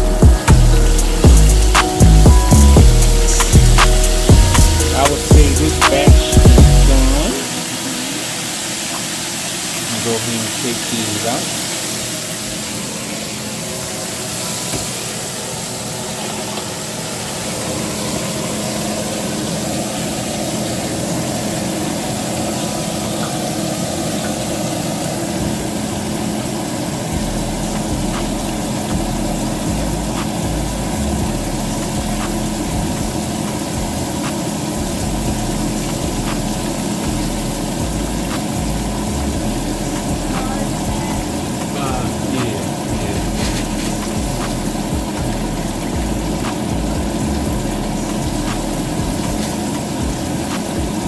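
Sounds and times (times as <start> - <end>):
low steady hum: 0.0 - 10.7, 27.1 - 34.2, 34.8 - 50.4
chicken sizzling in hot oil: 0.0 - 51.0.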